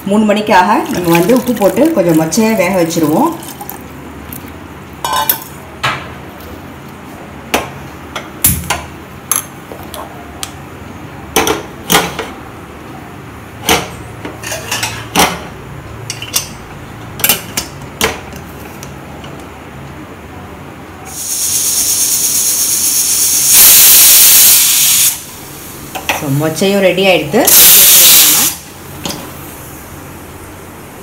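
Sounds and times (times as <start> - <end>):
metal pot clanking: 5.0 - 5.6.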